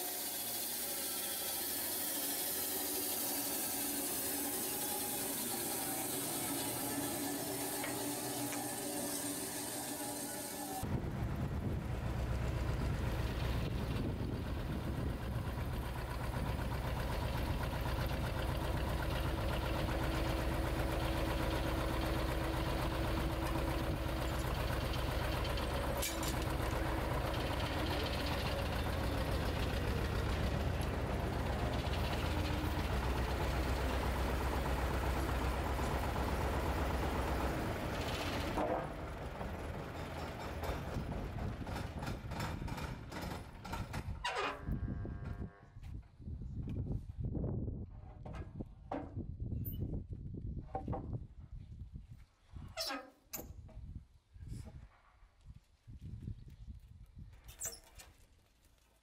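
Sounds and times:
heavy machinery engine running: 0.0 - 44.2.

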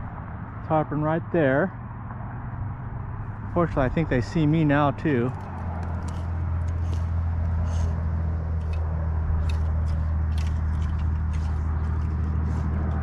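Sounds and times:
outboard motor humming: 5.4 - 13.0
sharp clicks: 8.6 - 13.0.

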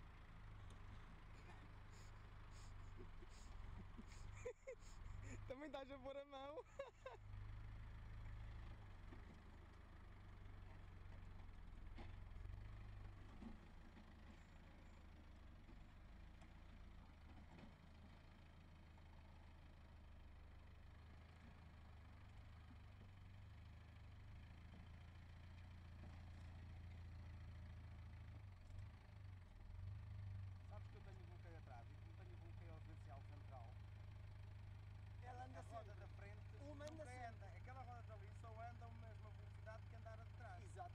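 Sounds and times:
diesel engine running at low revs: 0.0 - 40.9.

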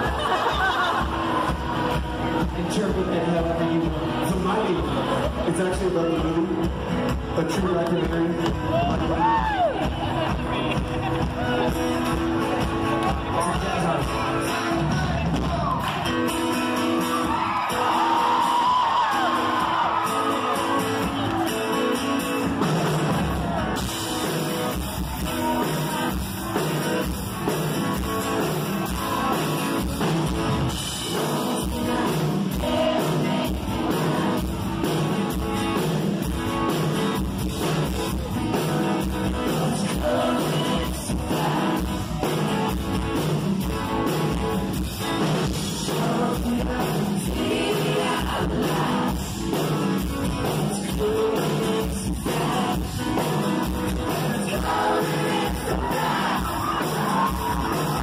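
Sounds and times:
drum kit steady beat: 0.0 - 16.4, 20.9 - 58.0
strummed acoustic guitars: 0.0 - 58.0
lead vocal singing: 30.9 - 35.1, 39.0 - 42.7, 45.4 - 58.0.

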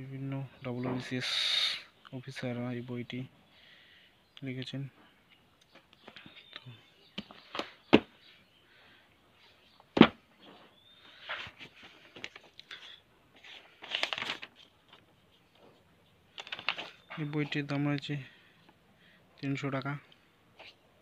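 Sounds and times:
sharp knocks of a book: 7.2 - 8.1
paper pages rustling and turning: 11.1 - 17.6.

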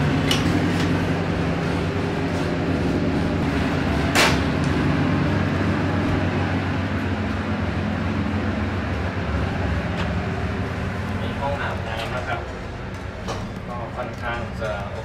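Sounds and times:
train carriage rumble and hum: 0.0 - 15.0.

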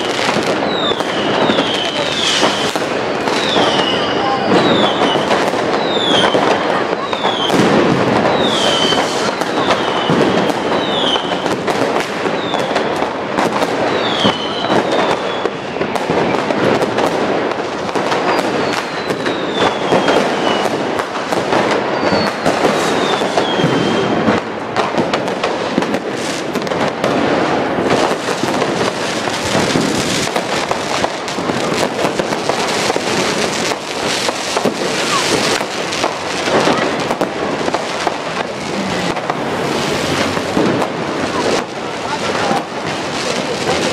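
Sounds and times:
falling firework whistles: 0.0 - 17.1, 17.9 - 24.5, 27.2 - 41.7
fireworks bangs and crackling: 0.0 - 43.9.

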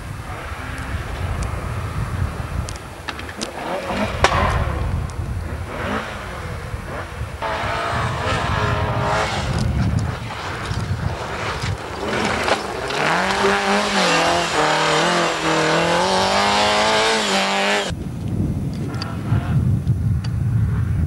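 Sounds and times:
rally car engine high revs: 3.4 - 17.9
tyres rushing on snow: 5.5 - 17.9.

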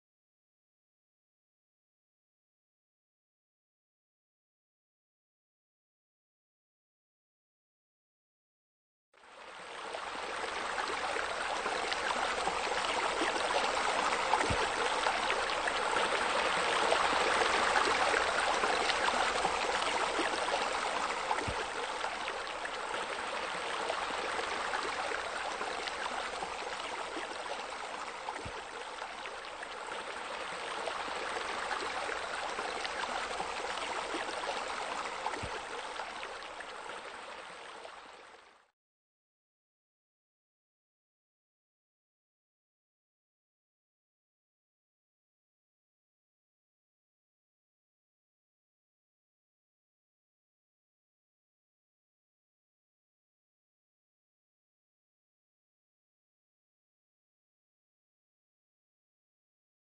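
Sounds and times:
flowing water rushing: 9.3 - 38.5.

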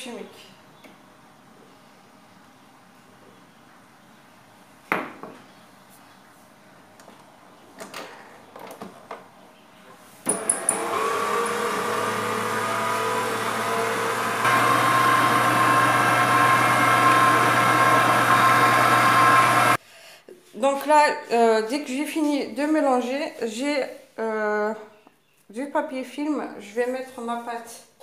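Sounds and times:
stand mixer motor whining: 10.3 - 19.8.

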